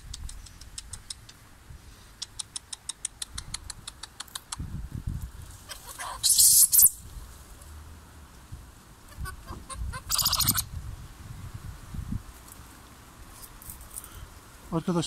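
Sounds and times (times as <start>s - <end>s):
animal high chirps: 5.7s - 7.0s, 9.1s - 10.7s.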